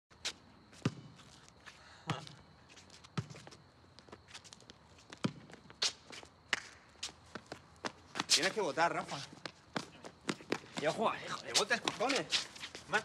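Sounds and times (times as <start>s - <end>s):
footsteps scuffing: 0.1s - 13.0s
basketball bouncing on a court: 0.8s - 1.2s, 5.2s - 5.6s.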